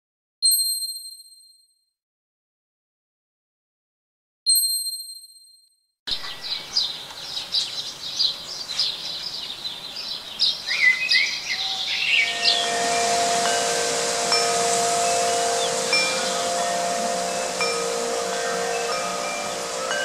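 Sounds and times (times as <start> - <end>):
songbirds chirping and singing: 6.1 - 20.0
metal wind chime ringing: 11.9 - 20.0
bright bell ding: 12.2 - 20.0.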